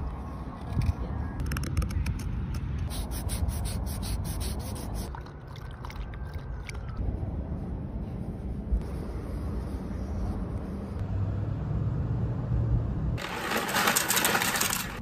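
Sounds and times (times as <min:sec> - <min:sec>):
sandpaper scratching on wood: 0:02.9 - 0:05.1
steady low rumble: 0:05.9 - 0:11.1.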